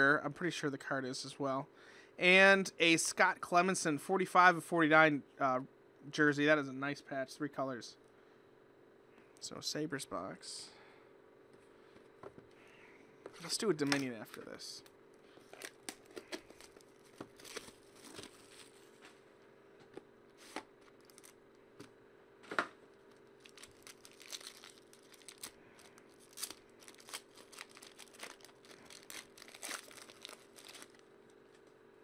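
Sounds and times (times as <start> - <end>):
plastic wrapping tearing and crumpling: 15.4 - 19.0, 20.4 - 21.4, 23.0 - 31.6.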